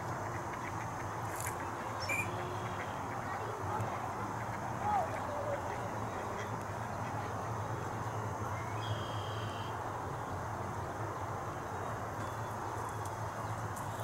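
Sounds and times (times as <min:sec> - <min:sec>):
steady background hum: 0:00.0 - 0:14.0
faint duck calls: 0:00.2 - 0:07.6.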